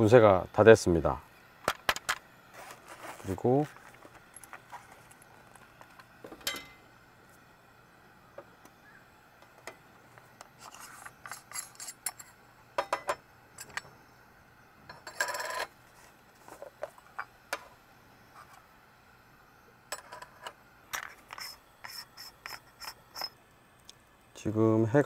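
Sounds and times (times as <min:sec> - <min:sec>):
rasping scrape: 0:10.6 - 0:12.3, 0:21.1 - 0:23.4.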